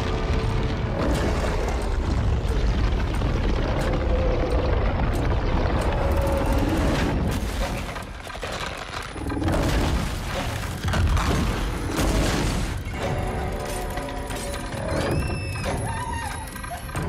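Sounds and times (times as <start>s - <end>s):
heavy booms and cracks: 0.0s - 13.2s
deep continuous rumble: 0.0s - 17.0s.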